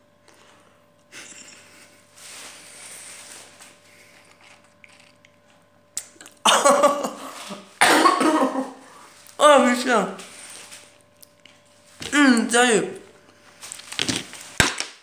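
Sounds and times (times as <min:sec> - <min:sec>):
person breathing: 0:00.3 - 0:04.3, 0:08.8 - 0:09.2
person coughing loudly: 0:06.4 - 0:08.9.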